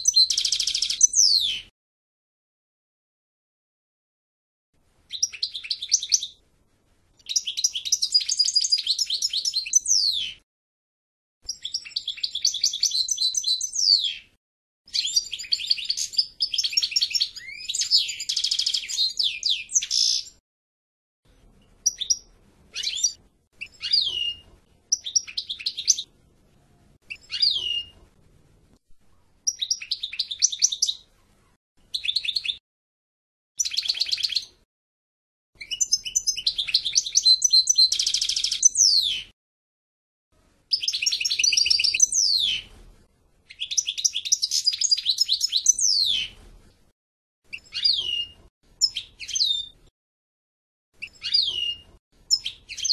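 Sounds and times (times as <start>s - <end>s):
finch singing: 0.0s - 1.7s, 5.1s - 6.4s, 7.2s - 10.4s, 11.5s - 14.3s, 14.9s - 20.4s, 21.8s - 26.1s, 27.1s - 28.0s, 29.4s - 31.1s, 31.9s - 32.6s, 33.6s - 34.6s, 35.6s - 39.3s, 40.7s - 42.7s, 43.5s - 46.4s, 47.5s - 49.8s, 51.0s - 52.9s.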